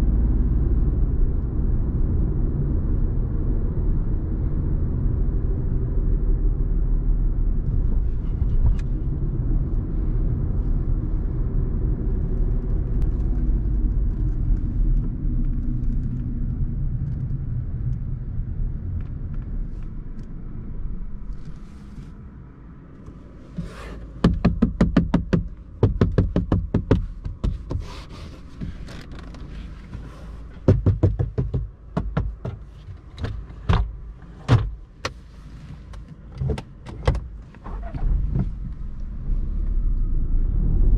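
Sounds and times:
car engine and road rumble: 0:00.0 - 0:40.9
knocks on interior trim panels: 0:24.2 - 0:27.9, 0:30.6 - 0:33.9.

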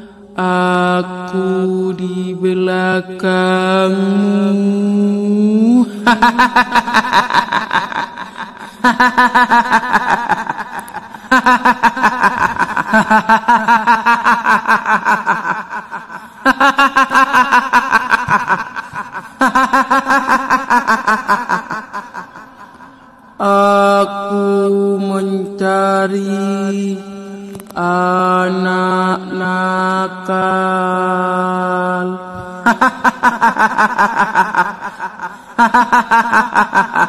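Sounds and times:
ghostly cackling laughter: 0:06.0 - 0:23.4, 0:32.6 - 0:37.0.

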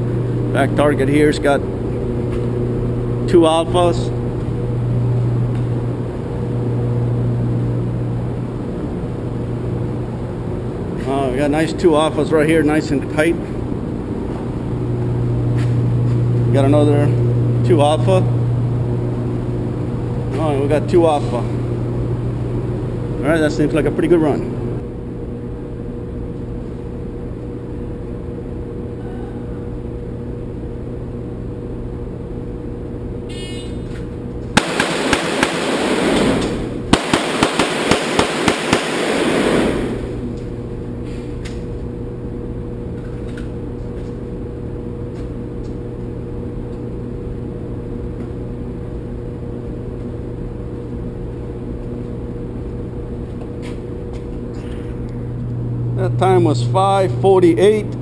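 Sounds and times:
ventilation hum: 0:00.0 - 0:58.0
pistol shots echoing: 0:34.6 - 0:39.9.

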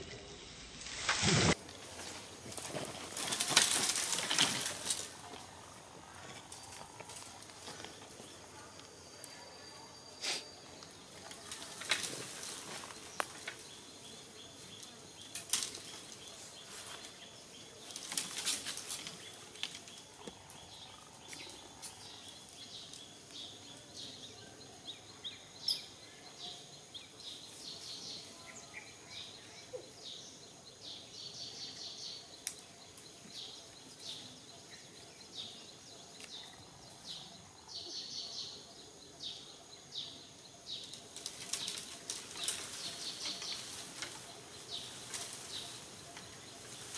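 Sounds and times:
dry leaves crackling and rustling: 0:00.4 - 0:08.8, 0:11.1 - 0:14.0, 0:14.8 - 0:23.1, 0:40.8 - 0:46.9
twigs snapping: 0:02.5 - 0:05.1, 0:15.3 - 0:16.3, 0:40.9 - 0:44.2.

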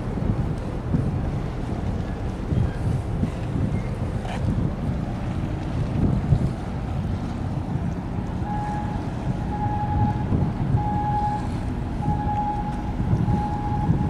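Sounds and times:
low harbour rumble: 0:00.0 - 0:14.0
wind buffeting microphone: 0:00.0 - 0:14.0
high electronic warning beep: 0:08.5 - 0:14.0.

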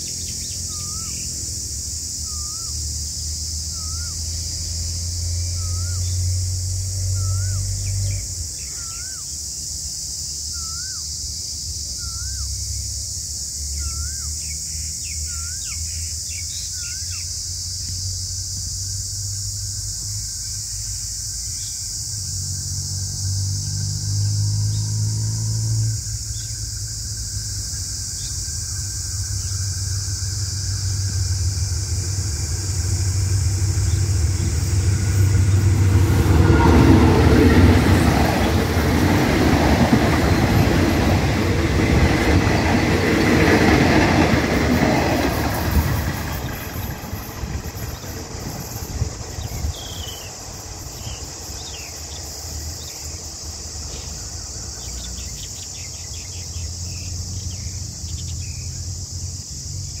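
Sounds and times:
locomotive engine drone: 0:00.0 - 1:00.0
rail rumble: 0:00.0 - 1:00.0
train wheels clattering: 0:29.6 - 0:51.7.

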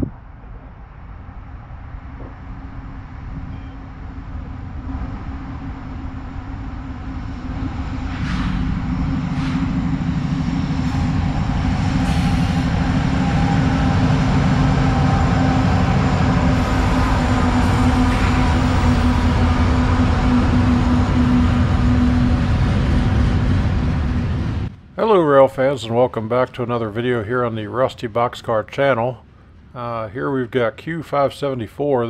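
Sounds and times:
locomotive engines droning: 0:00.0 - 0:32.0
brief hissing: 0:08.1 - 0:09.8, 0:12.0 - 0:12.8.

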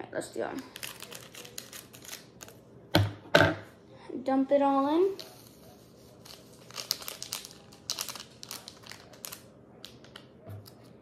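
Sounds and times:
seasoning packet crinkling: 0:00.8 - 0:02.5, 0:06.2 - 0:10.2.

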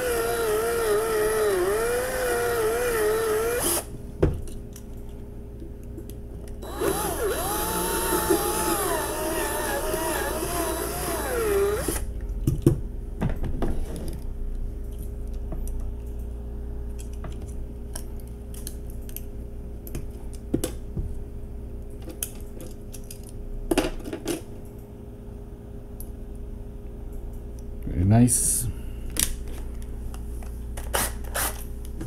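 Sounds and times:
power drill whining: 0:00.0 - 0:03.9, 0:06.6 - 0:12.1.

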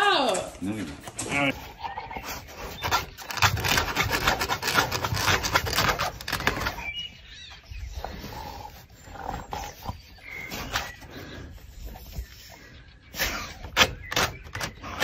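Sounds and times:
dog scratching fabric: 0:02.2 - 0:06.9.

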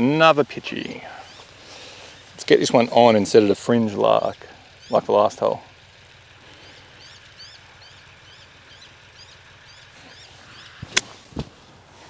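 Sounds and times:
bird chirping: 0:00.6 - 0:11.0
golf club striking ball: 0:10.7 - 0:11.2.

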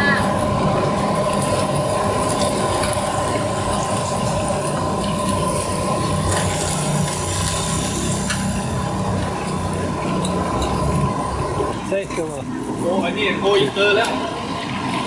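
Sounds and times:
hot oil sizzling in a wok: 0:00.0 - 0:11.9.

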